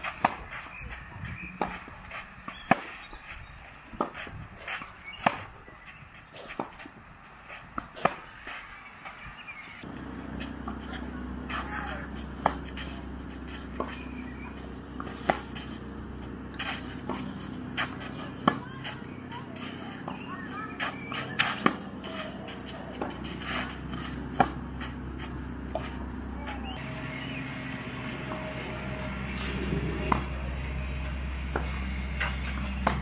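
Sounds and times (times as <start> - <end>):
tennis racket hitting ball: 0.0 - 0.7, 1.6 - 3.0, 7.8 - 8.5, 10.3 - 26.0, 29.4 - 30.4
tennis ball bouncing: 0.0 - 0.8, 1.4 - 3.3, 3.9 - 5.7, 7.8 - 8.6, 9.8 - 26.8, 29.4 - 30.5, 31.4 - 33.0.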